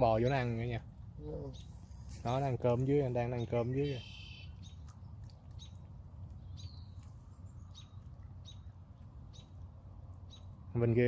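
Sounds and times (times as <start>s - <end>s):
low background rumble: 2.7s - 10.8s
bird chirps: 3.1s - 9.6s, 10.2s - 10.8s.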